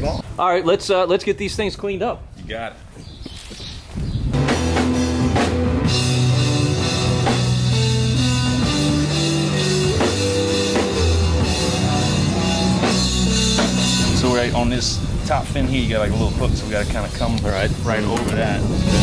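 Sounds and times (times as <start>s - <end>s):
rock music: 4.4s - 15.4s, 18.4s - 19.0s.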